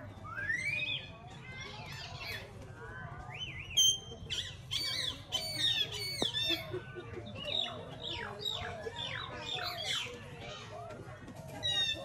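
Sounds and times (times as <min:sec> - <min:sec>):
monkeys squealing: 0:03.8 - 0:06.7.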